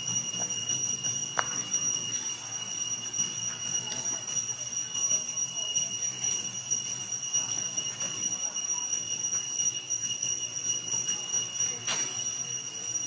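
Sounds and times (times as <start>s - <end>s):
high-pitched two-tone drone: 0.0s - 13.0s.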